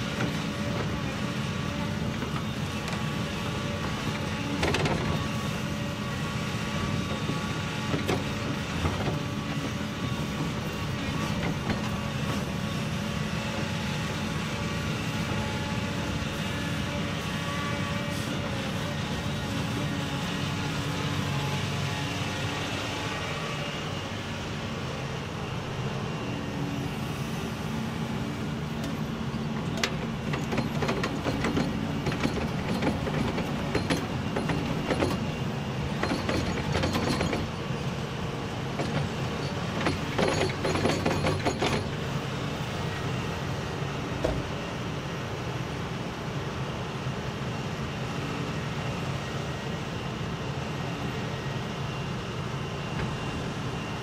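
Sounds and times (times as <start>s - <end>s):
excavator diesel engine running: 0.0s - 54.0s
soil and stones rattling into truck: 29.6s - 37.6s.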